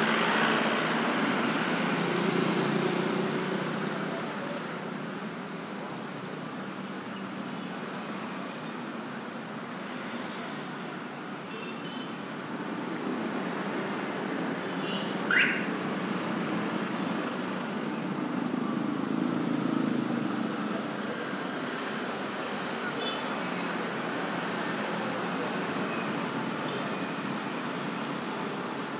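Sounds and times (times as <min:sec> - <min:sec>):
motorbikes and cars passing: 0:00.0 - 0:05.0.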